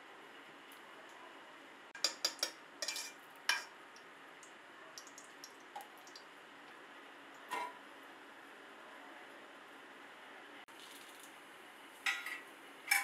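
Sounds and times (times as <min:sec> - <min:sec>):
utensil clinking on steel pot: 0:02.0 - 0:03.7.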